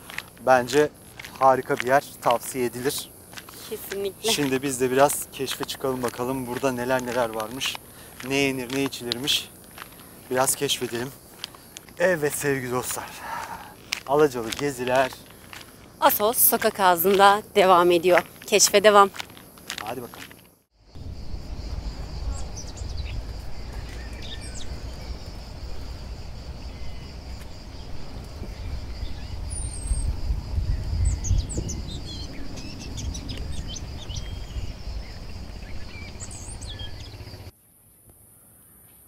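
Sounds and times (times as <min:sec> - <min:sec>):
birds chirping: 0:00.0 - 0:20.3, 0:21.0 - 0:37.5
high insect buzz: 0:00.0 - 0:37.5
low rumble on microphone: 0:20.9 - 0:37.1.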